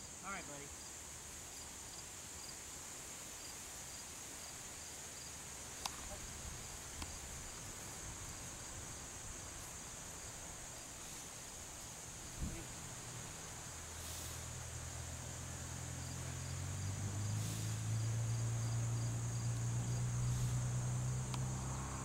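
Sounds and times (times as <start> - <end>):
insects chirping in grass: 0.0 - 22.0
faint sharp clicks: 5.8 - 6.2, 6.9 - 7.2, 21.3 - 21.5.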